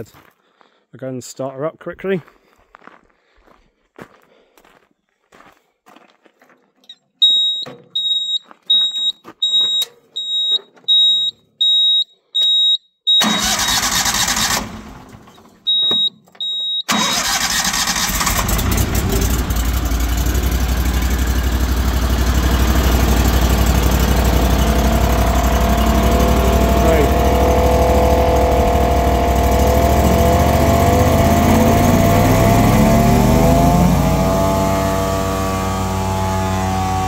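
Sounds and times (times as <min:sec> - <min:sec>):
short high warning beeps: 0:07.2 - 0:13.8, 0:15.7 - 0:16.9
petrol engine starting and running: 0:13.2 - 0:37.0.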